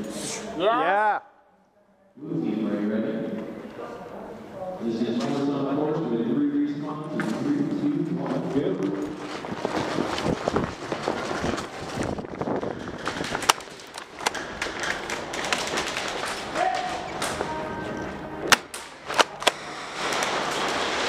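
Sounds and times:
player rustling and scuffing: 8.2 - 16.5.

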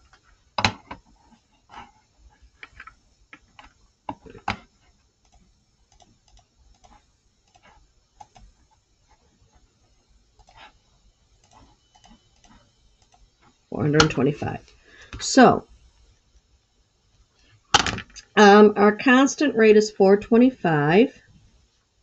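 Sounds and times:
computer mouse clicking: 5.2 - 8.5, 10.4 - 10.8, 11.4 - 14.2.

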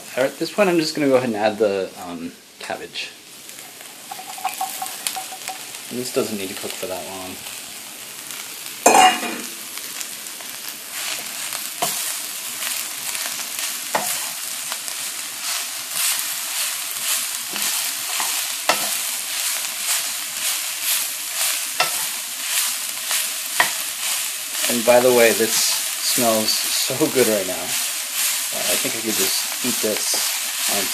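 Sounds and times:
vegetables sizzling in oil: 0.0 - 30.9
spoon knocking on pan: 4.0 - 5.7.

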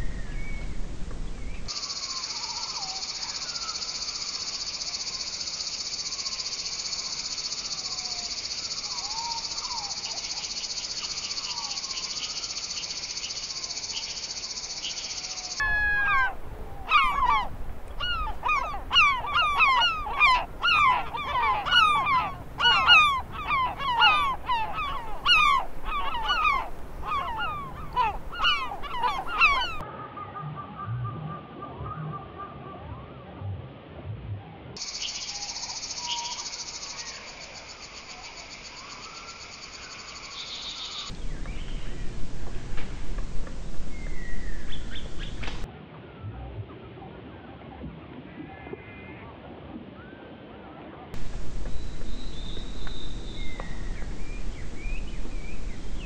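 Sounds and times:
high-pitched insect drone: 1.7 - 15.6, 34.8 - 41.1
flock of terns calling: 15.4 - 29.8.

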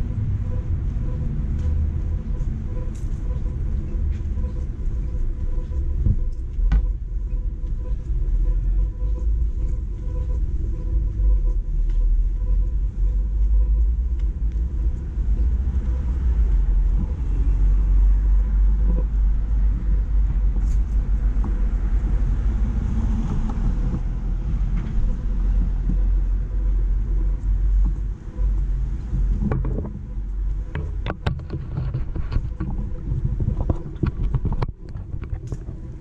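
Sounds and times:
traffic rumble: 0.0 - 36.0
sharp clicks and knocks: 27.8 - 36.0.

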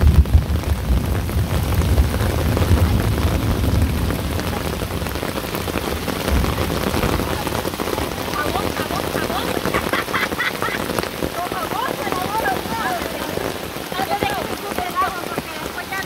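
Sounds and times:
low rumble: 0.0 - 7.9
rain falling on water: 0.0 - 16.0.

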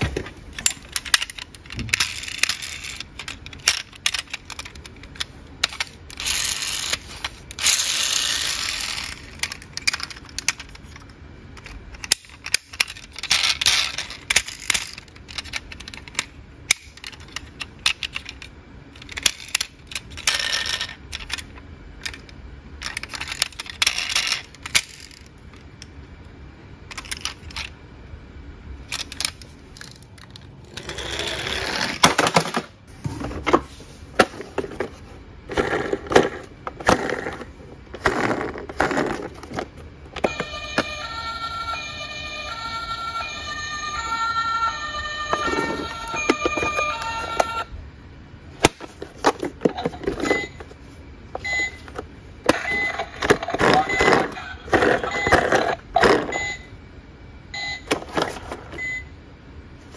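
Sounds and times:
toy cars clicking and clattering: 0.6 - 25.8, 26.9 - 27.7, 28.9 - 32.7.

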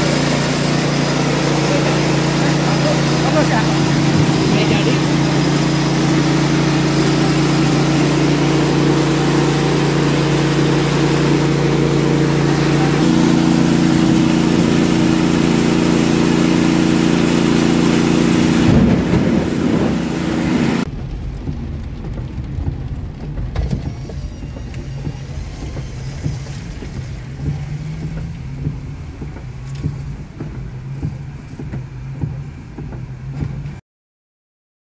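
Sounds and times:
rice milling machine running: 0.0 - 20.9, 22.6 - 30.0
road and engine hum: 0.0 - 33.8
raindrops ticking on windshield: 20.8 - 33.8.

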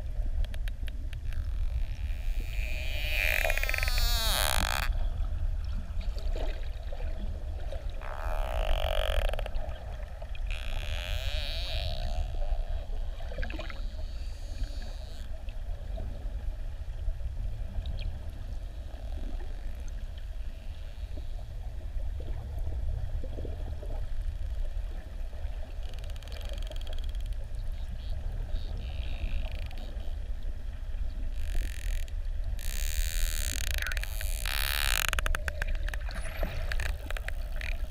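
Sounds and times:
underwater water rumble: 0.0 - 37.9
dolphin clicks: 31.4 - 37.9.

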